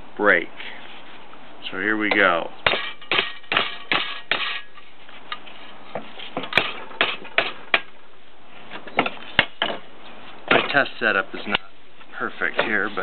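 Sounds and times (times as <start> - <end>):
hammer striking metal bolts: 2.1 - 4.7.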